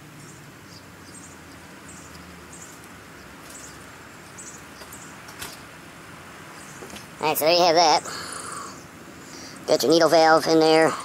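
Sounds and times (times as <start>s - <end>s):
insects chirping: 0.2s - 5.6s.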